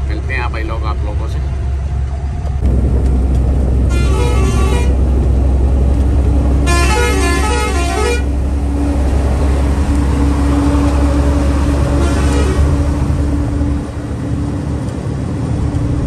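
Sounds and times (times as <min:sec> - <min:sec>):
truck engine and road drone: 0:00.0 - 0:16.0
multi-note vehicle horn: 0:03.9 - 0:05.0, 0:06.6 - 0:08.3, 0:11.9 - 0:12.8.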